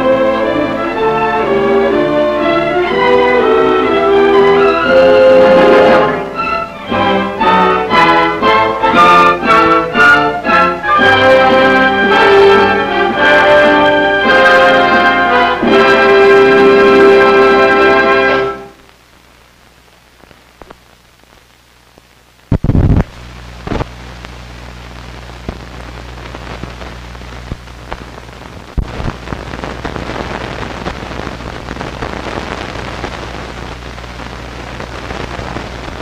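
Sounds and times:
mains hum: 0.0s - 36.0s
film crackle and pops: 18.7s - 36.0s.

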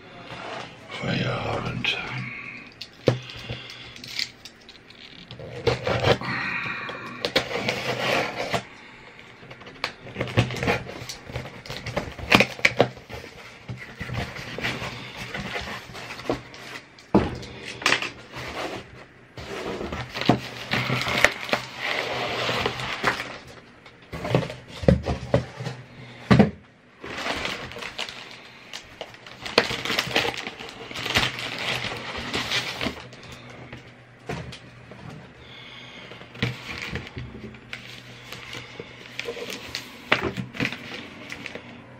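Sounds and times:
plastic package crinkling: 27.0s - 33.6s.

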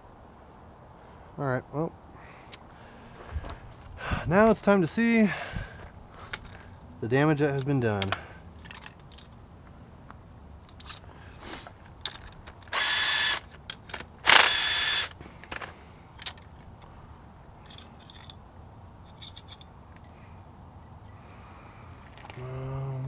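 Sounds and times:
metal parts clicking: 7.5s - 9.4s, 10.6s - 11.1s, 11.8s - 16.9s, 17.6s - 18.4s, 19.0s - 21.3s.

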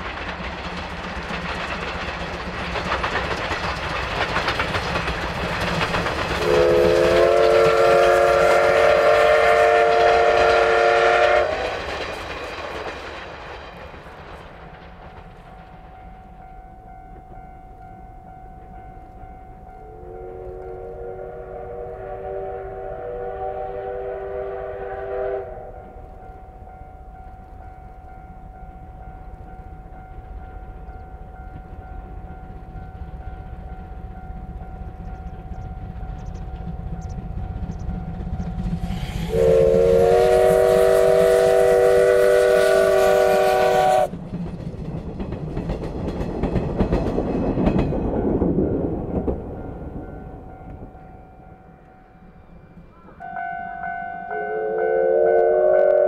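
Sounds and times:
train rumble and wheel clatter: 0.0s - 56.0s
steam locomotive whistle: 6.4s - 11.9s, 19.8s - 26.2s, 38.7s - 44.1s, 52.9s - 56.0s.

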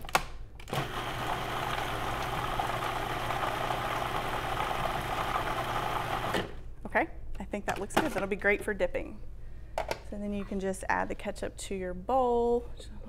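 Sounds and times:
food processor motor running: 0.7s - 6.5s.

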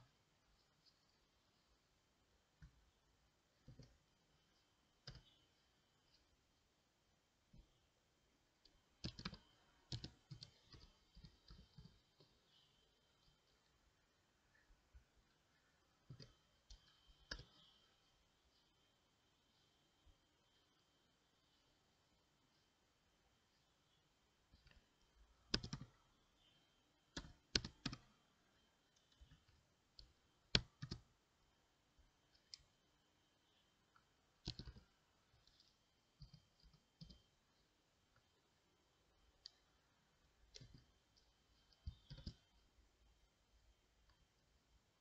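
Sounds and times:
computer keyboard keystrokes: 5.0s - 5.4s, 9.0s - 12.3s, 16.1s - 17.6s, 25.5s - 26.0s, 27.1s - 28.1s, 29.0s - 31.1s, 34.4s - 34.8s, 41.7s - 42.5s.

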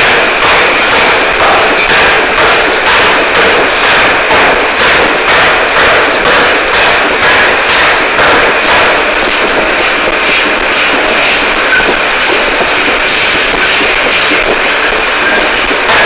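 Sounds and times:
forging hammer pounding steel: 0.0s - 16.0s.

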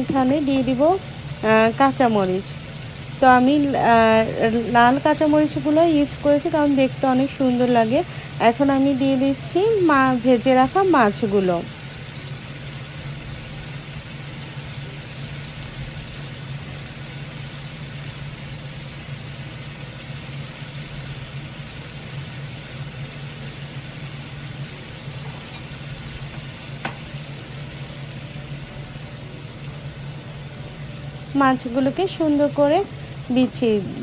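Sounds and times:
curry sizzling in a frying pan: 0.0s - 34.0s
low steady hum: 0.0s - 34.0s.

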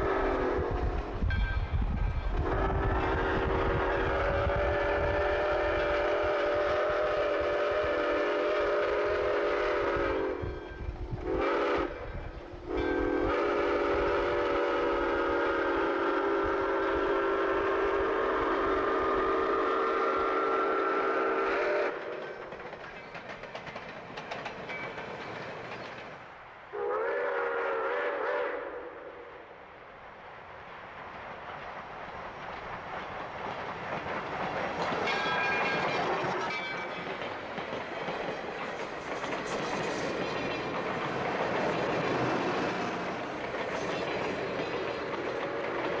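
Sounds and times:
steam locomotive rumble: 0.0s - 46.0s
steam whistle blasts: 2.3s - 22.1s, 26.7s - 29.3s.

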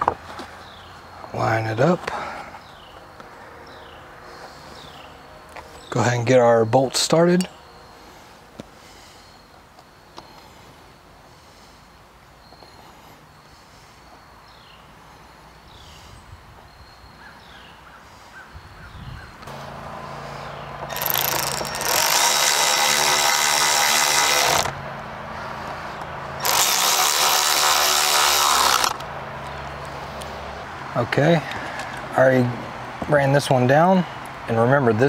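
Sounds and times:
cordless power driver whirring: 20.8s - 24.8s, 26.0s - 29.1s.

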